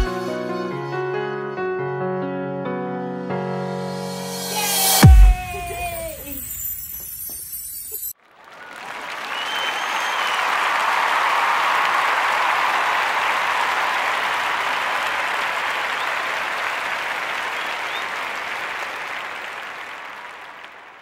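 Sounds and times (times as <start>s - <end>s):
crowd applauding: 8.2s - 21.0s.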